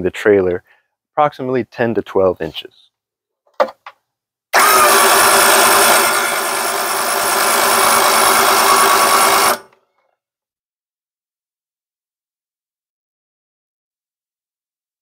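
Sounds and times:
electric winch motor whine: 0:04.6 - 0:09.8.

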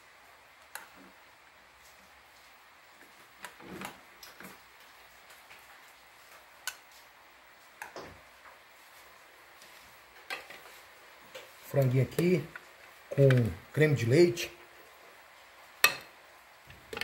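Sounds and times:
metal spoons clinking on pots: 0:15.8 - 0:16.1.

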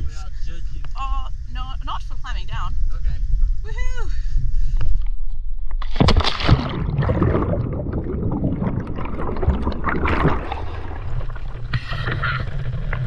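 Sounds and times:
water splashing and bubbling: 0:05.8 - 0:13.0.

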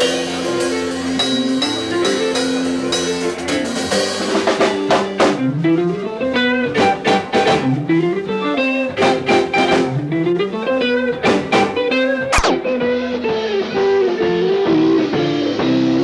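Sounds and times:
drum kit and cymbal hits: 0:00.0 - 0:05.6, 0:11.1 - 0:13.8
electric guitar riff: 0:00.0 - 0:16.0.

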